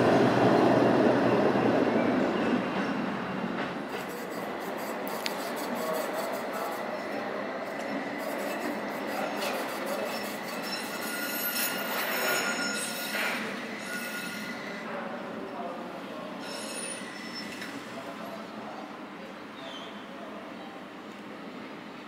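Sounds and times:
tram wheels squealing on rails: 0.0 - 15.2, 16.2 - 18.8.

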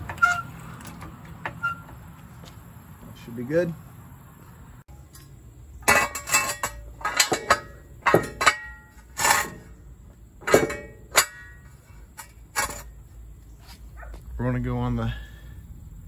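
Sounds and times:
metal jack stand clanking: 5.8 - 9.8, 10.4 - 13.0.

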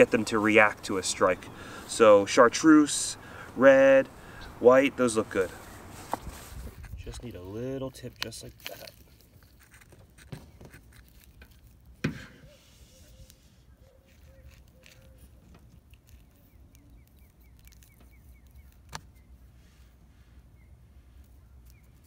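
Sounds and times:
close handling noise: 5.9 - 20.0.

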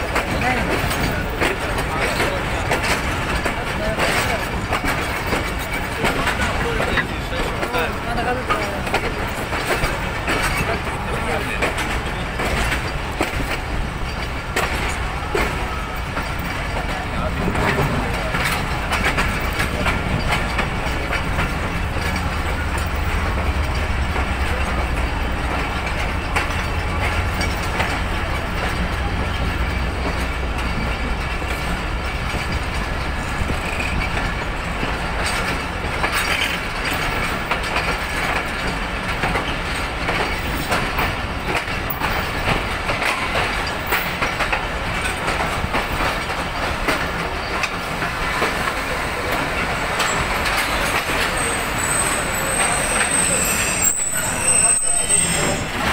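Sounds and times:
train rolling rumble: 0.0 - 55.9
train wheels clacking on rails: 0.0 - 55.9.

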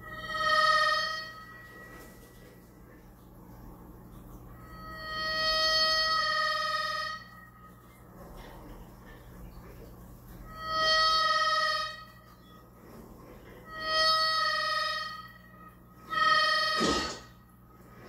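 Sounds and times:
shrill harmonica notes: 0.0 - 2.3, 4.6 - 7.7, 10.4 - 12.6, 13.6 - 17.4.

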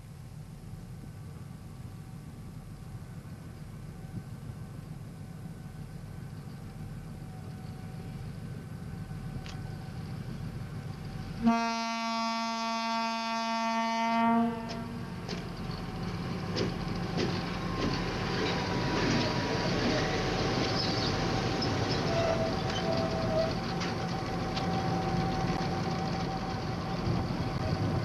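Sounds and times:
diesel locomotive engine rumbling: 0.0 - 28.0
locomotive horn blast: 11.4 - 15.0
wheels clicking over rail joints: 14.6 - 28.0.

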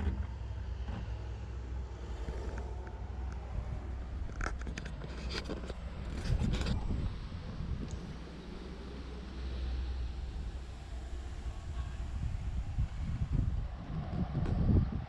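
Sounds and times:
steady low rumble: 0.0 - 15.0
sharp clicks and scrapes: 4.1 - 7.1.

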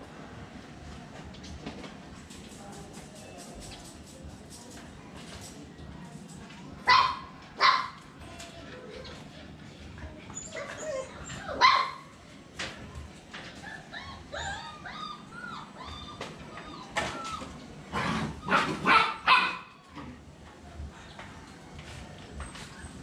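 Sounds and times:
dogs whimpering and yipping: 10.3 - 11.8, 13.5 - 17.7
dogs barking: 18.2 - 19.8.

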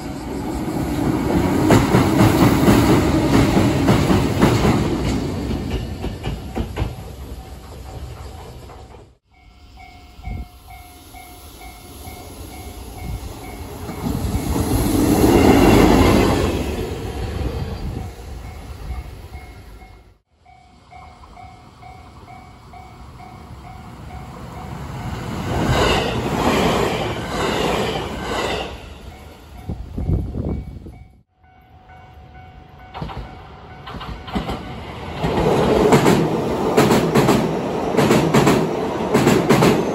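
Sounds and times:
train passing: 0.0 - 39.9
train wheels clicking on rail joints: 0.2 - 20.0, 32.8 - 39.9.

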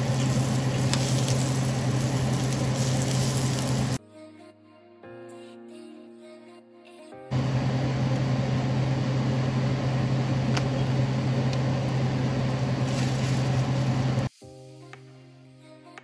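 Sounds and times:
exhaust fan humming: 0.0 - 4.0, 7.3 - 14.3.

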